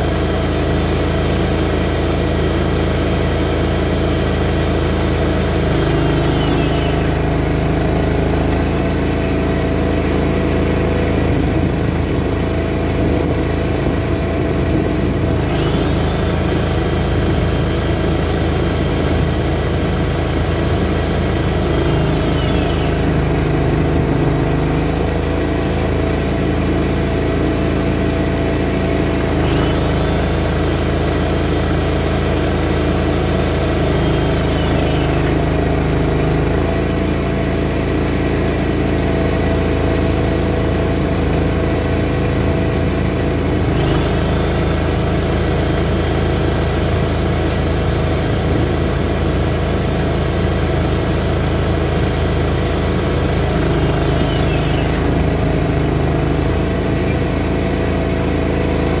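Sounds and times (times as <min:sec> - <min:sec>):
mower engine running: 0:00.0 - 0:59.0
high whine: 0:03.5 - 0:37.3.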